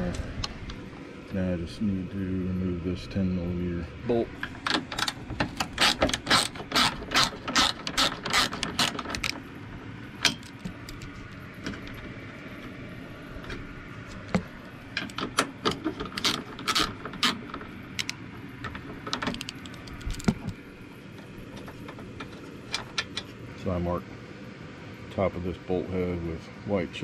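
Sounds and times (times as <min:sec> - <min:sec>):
socket ratchet clicking: 0:18.0 - 0:18.2, 0:19.1 - 0:20.4.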